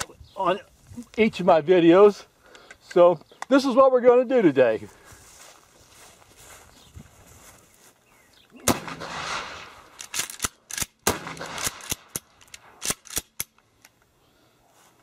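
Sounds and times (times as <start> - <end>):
shotgun blasts: 8.6 - 13.0
sharp cracks and clicks: 8.6 - 14.1.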